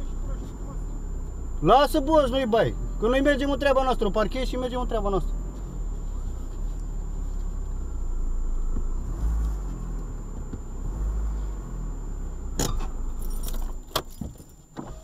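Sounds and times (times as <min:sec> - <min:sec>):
car engine low rumble: 0:00.0 - 0:15.0
keys jangling: 0:13.2 - 0:14.6.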